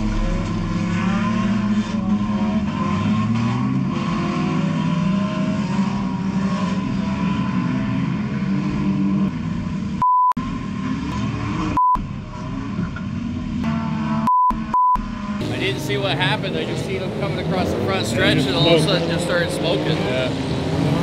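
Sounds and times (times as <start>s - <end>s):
race car engines: 0.0s - 21.0s
censor bleep: 10.0s - 10.4s, 14.2s - 15.0s.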